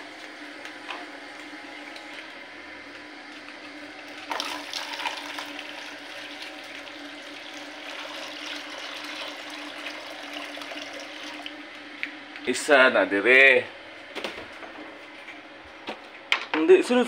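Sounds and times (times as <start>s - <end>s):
water pouring into plastic bowl: 4.2s - 11.6s.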